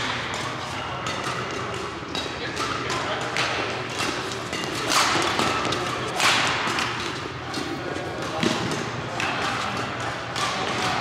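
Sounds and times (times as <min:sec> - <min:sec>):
echoing background chatter: 0:00.0 - 0:11.0
rackets hitting shuttlecock: 0:00.0 - 0:11.0.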